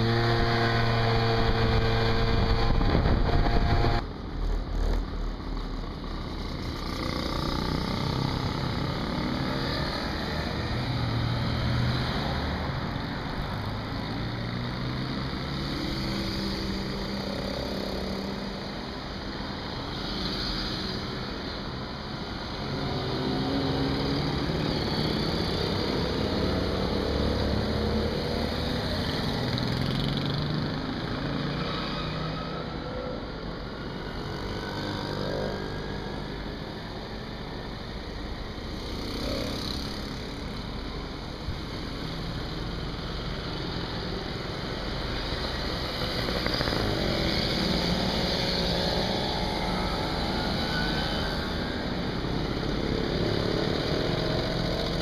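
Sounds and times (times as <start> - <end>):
mopeds riding past: 44.8 - 55.0.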